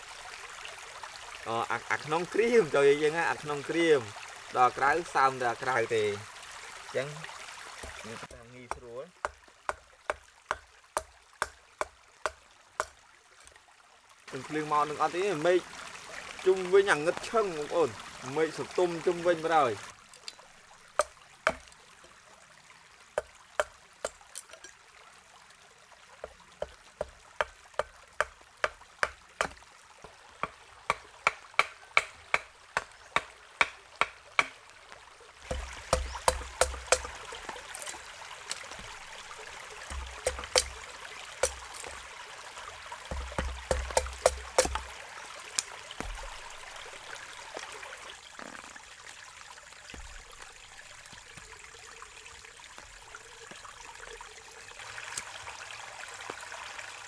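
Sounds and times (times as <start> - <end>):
stream water running: 0.0 - 57.0
chopping knocks on wood: 21.0 - 21.7, 28.6 - 29.6, 30.4 - 34.6, 35.5 - 37.1, 39.9 - 40.8, 43.1 - 44.9, 46.0 - 46.4, 49.9 - 50.3.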